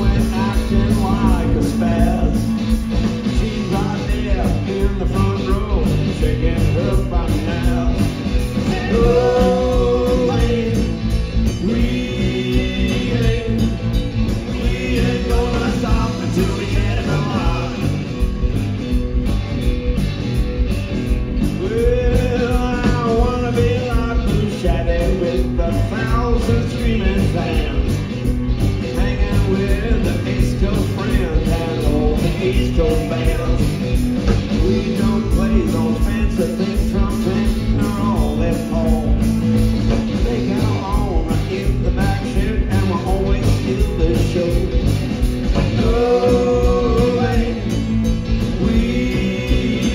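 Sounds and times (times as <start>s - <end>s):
drum kit beat: 0.0s - 49.9s
electric guitars: 0.0s - 49.9s.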